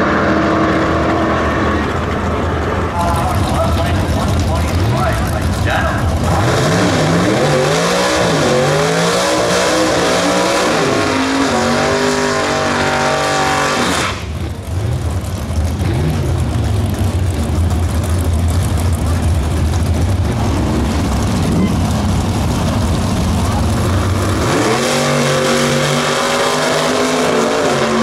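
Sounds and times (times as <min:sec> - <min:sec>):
engines idling with low rumble: 0:01.1 - 0:07.5, 0:14.2 - 0:24.6
car engine revving hard: 0:06.1 - 0:15.0, 0:20.2 - 0:28.0.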